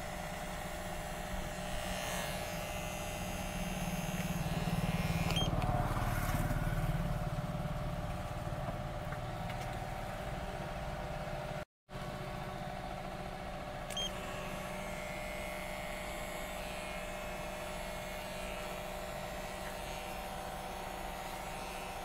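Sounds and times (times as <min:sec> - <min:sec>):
electric hair clipper humming: 0:00.0 - 0:07.4, 0:13.8 - 0:22.0.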